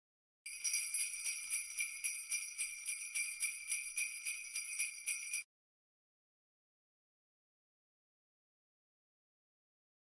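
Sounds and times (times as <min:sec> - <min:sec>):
jingle bells shaken: 0:00.5 - 0:05.5.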